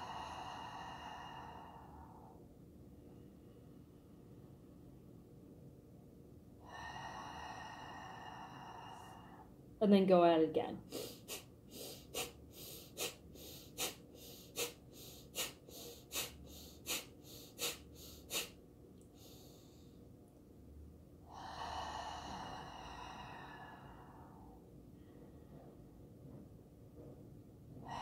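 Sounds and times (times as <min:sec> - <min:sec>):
long slow breath: 0:00.0 - 0:02.5, 0:06.6 - 0:09.6, 0:10.9 - 0:20.0, 0:21.3 - 0:25.7
rapid forceful nose breathing: 0:10.9 - 0:18.6.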